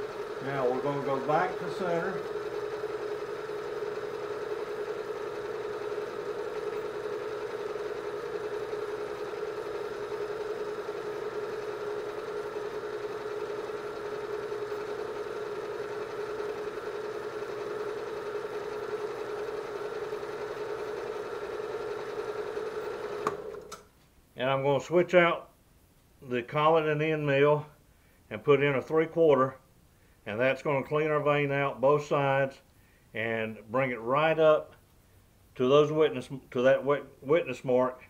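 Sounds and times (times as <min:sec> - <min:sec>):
milling machine hum: 0:00.0 - 0:23.8.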